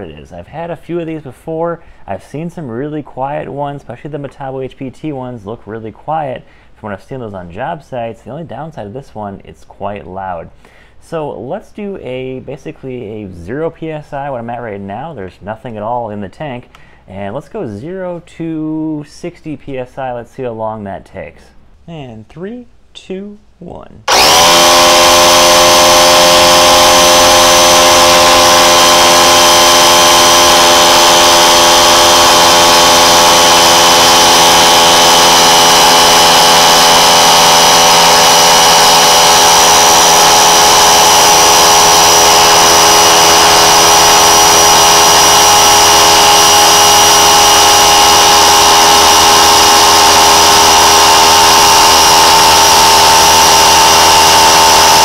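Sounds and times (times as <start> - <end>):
air compressor running: 24.1 - 55.0.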